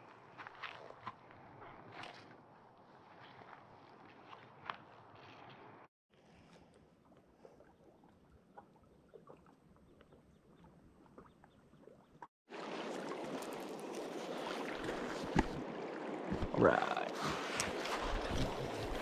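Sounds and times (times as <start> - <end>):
river water lapping on gravel: 11.8 - 19.0.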